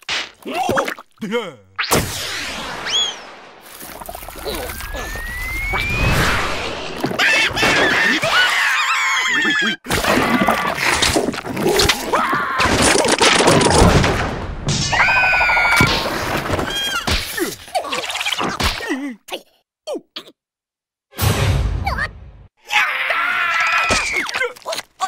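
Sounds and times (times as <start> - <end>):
comic whack and crash effects: 1.8 - 3.2
cartoon characters screeching: 4.5 - 6.6, 7.2 - 10.7, 14.9 - 16.0.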